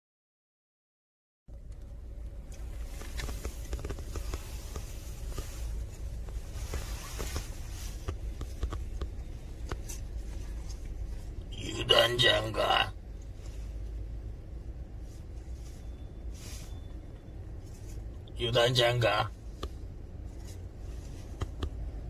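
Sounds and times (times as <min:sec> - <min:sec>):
car cabin low rumble: 0:01.5 - 0:22.0
phone handling clicks and rustles: 0:01.7 - 0:11.0.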